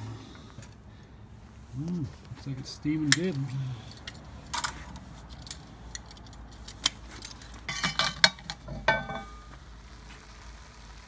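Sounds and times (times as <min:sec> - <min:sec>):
metal lid clinking and rattling: 0:07.6 - 0:09.4
metal lid clanging: 0:07.7 - 0:09.4.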